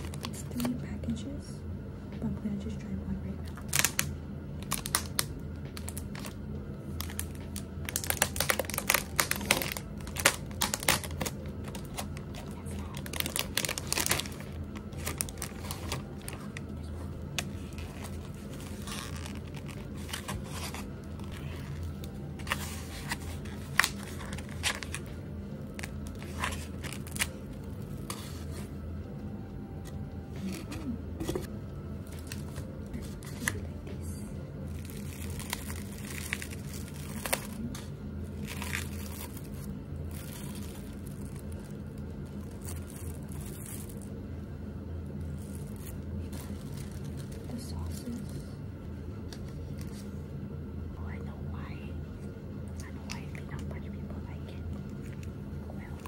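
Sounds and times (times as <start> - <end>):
plastic packaging crinkling and tearing: 0.0 - 0.8, 3.5 - 28.8, 29.8 - 33.8, 34.6 - 44.2, 45.2 - 48.4
steady low hum: 0.0 - 56.0.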